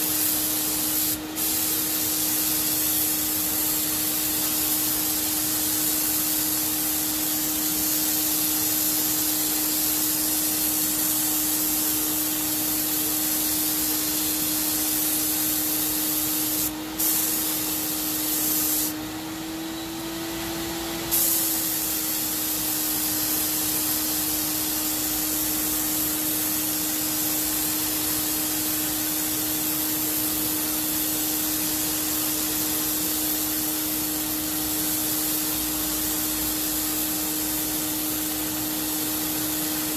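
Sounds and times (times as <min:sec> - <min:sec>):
spray gun hissing: 0:00.0 - 0:19.6, 0:20.8 - 0:39.9
paint sprayer turbine whine: 0:00.0 - 0:39.9.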